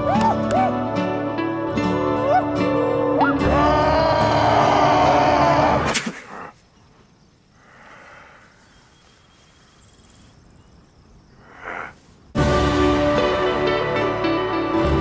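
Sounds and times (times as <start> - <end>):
thin insect-like chirp: 6.6 - 11.8
soft rustle: 8.4 - 10.4
soundtrack music: 12.4 - 15.0.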